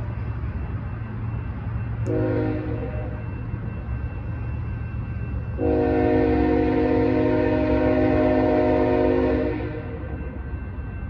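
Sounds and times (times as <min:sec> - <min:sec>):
low train rumble: 0:00.0 - 0:11.0
locomotive air horn blasts: 0:02.1 - 0:03.1, 0:05.6 - 0:10.0.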